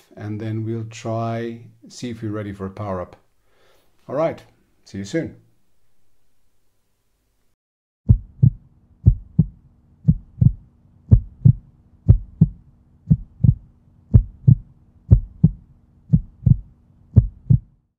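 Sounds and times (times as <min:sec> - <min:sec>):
heartbeat thumps: 0:08.1 - 0:17.9.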